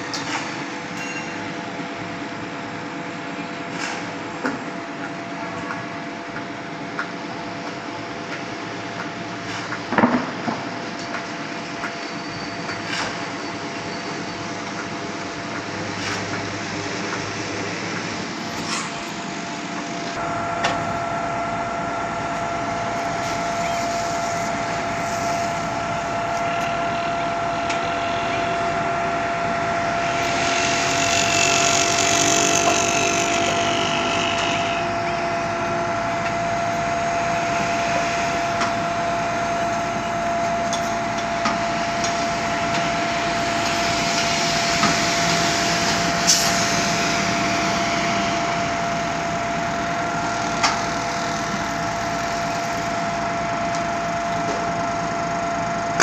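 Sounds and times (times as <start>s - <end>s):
hydraulics whining: 11.6s - 56.0s.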